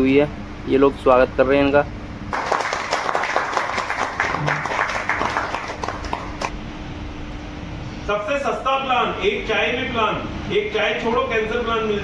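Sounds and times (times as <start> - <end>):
people clapping: 2.3 - 6.6.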